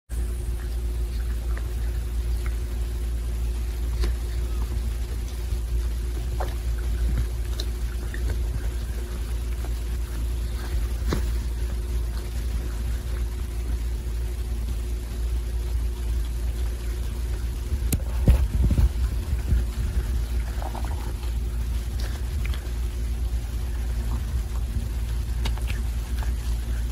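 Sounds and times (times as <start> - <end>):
low rumble: 0.2 - 26.9
cat licking fur: 16.7 - 26.9.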